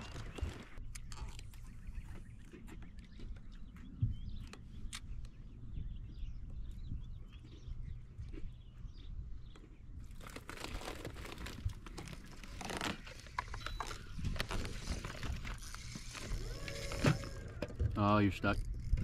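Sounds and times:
crackling and rustling: 0:09.6 - 0:19.0.

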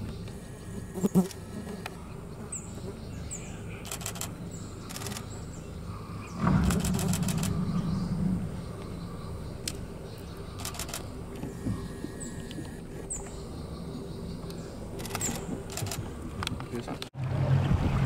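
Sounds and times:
low hum: 0:03.2 - 0:16.6
camera shutter clicks: 0:03.8 - 0:04.3, 0:04.9 - 0:05.3, 0:06.6 - 0:07.6, 0:10.6 - 0:11.1, 0:15.0 - 0:16.0.

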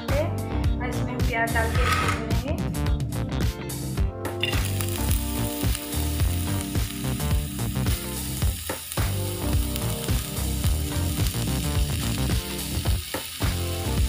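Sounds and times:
background music with steady beat: 0:00.0 - 0:14.0
onions sizzling in hot oil: 0:04.4 - 0:14.0.

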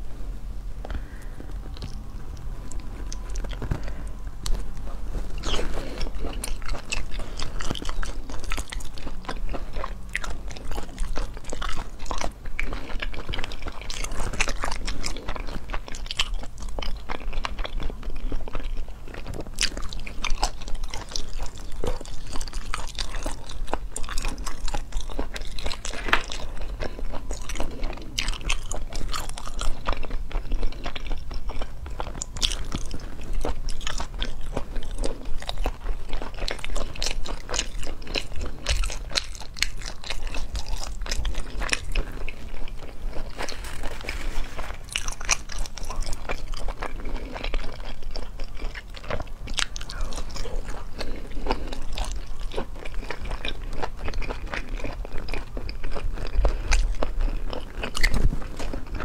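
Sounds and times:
low hum: 0:00.0 - 0:15.7
person chewing meat: 0:00.0 - 0:59.0.

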